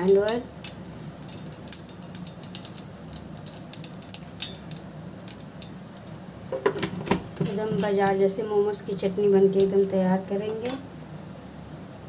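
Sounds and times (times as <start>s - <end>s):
oil crackling in pan: 0.0s - 6.2s.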